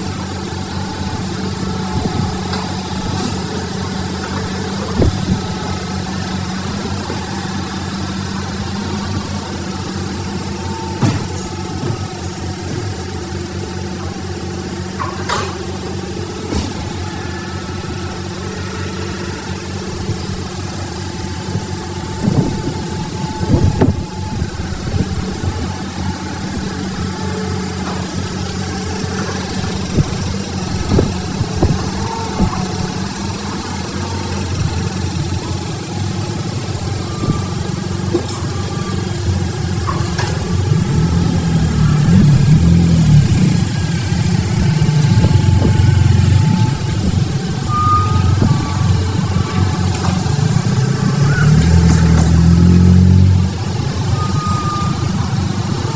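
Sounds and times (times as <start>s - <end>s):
excavator diesel engine revving: 0.0s - 55.9s.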